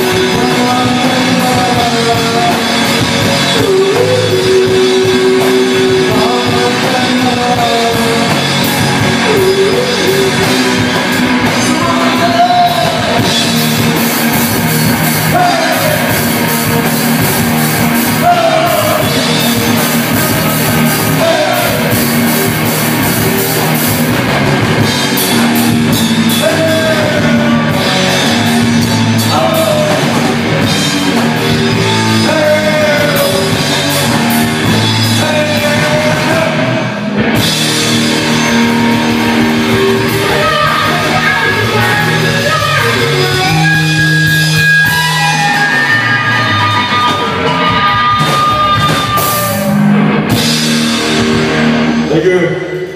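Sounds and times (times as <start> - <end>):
lead vocalist singing: 0.0 - 23.5, 24.8 - 49.8, 52.0 - 52.9
bass guitar: 0.0 - 52.9
drum kit: 0.0 - 52.9
electric guitar: 0.0 - 52.9.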